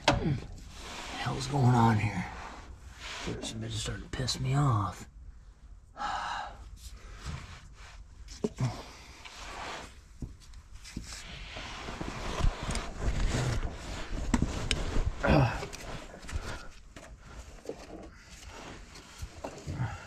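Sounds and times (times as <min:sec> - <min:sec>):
person grunting: 0:15.2 - 0:15.7.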